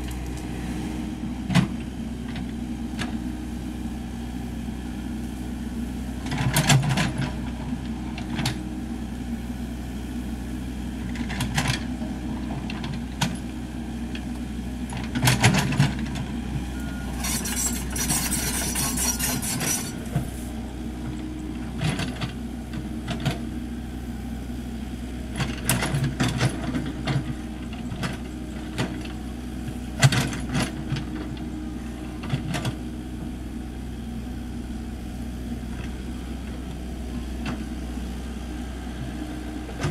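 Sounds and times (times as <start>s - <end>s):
excavator diesel engine running: 0.0s - 39.9s
bucket clanking and scraping soil: 16.9s - 20.5s.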